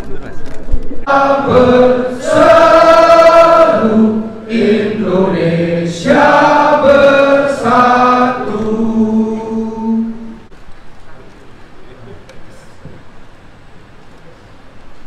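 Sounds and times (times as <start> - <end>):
men singing in unison: 1.1 - 10.5.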